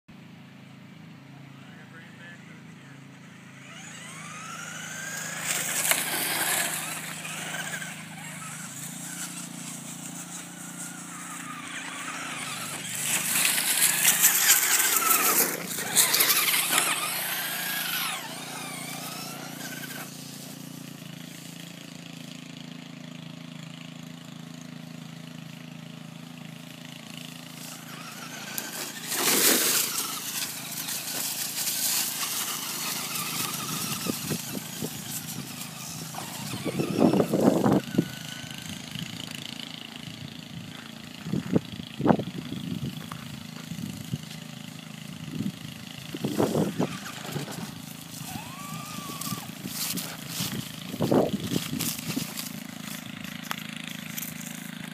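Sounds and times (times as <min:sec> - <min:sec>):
toy car motor whining: 0:03.3 - 0:22.3, 0:26.2 - 0:54.9.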